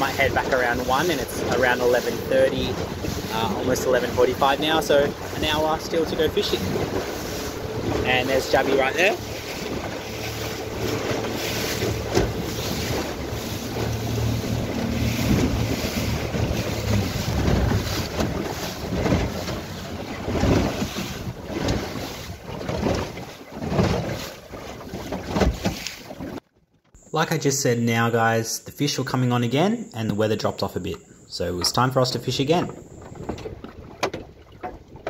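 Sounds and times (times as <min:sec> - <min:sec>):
low steady hum: 0:00.0 - 0:20.9
wind buffeting microphone: 0:00.0 - 0:23.2
choppy water: 0:00.0 - 0:26.5, 0:31.4 - 0:35.0.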